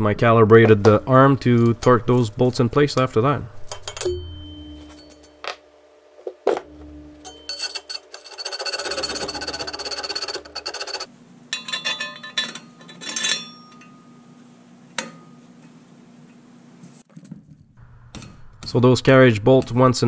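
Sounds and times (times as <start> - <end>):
fast rasping on steel: 7.5 - 11.1.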